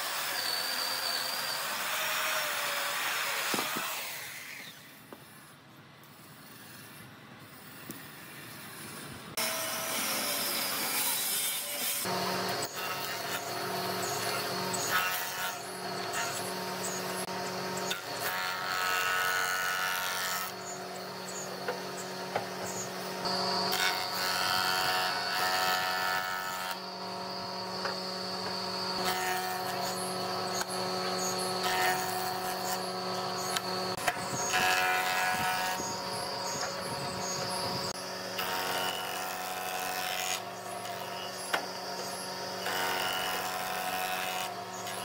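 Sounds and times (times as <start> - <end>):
jointer cutting wood: 0.0 - 4.8, 9.4 - 45.0
jointer machine hum: 11.9 - 45.0.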